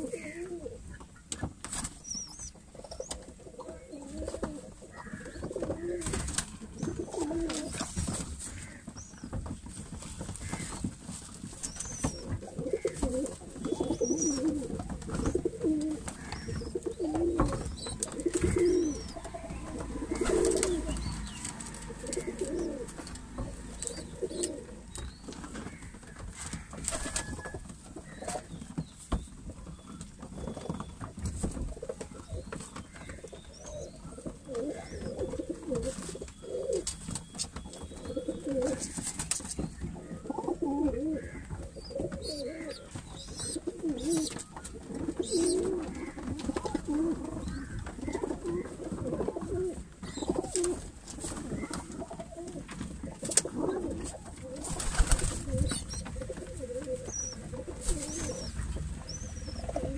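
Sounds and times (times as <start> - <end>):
pigeons cooing: 0.0 - 8.9, 11.6 - 28.7, 30.4 - 59.9
beaks pecking grain: 0.0 - 59.9
pigeon flapping wings: 53.1 - 58.6.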